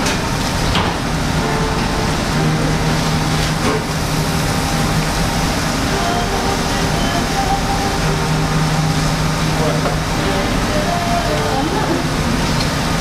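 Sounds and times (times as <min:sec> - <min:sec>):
low hum: 0:00.0 - 0:13.0
rush of restaurant noise: 0:00.0 - 0:13.0.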